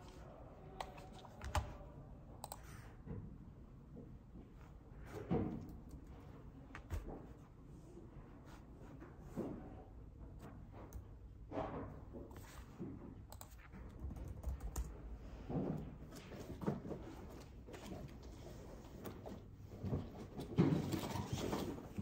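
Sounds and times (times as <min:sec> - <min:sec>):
typing on laptop keyboard: 0:00.8 - 0:01.8, 0:13.3 - 0:15.0.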